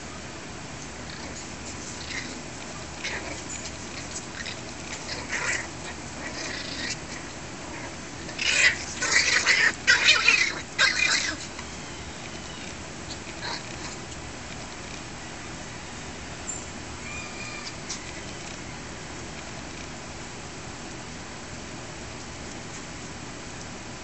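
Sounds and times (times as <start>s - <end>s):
puppies yipping: 1.0s - 14.2s, 16.2s - 18.9s.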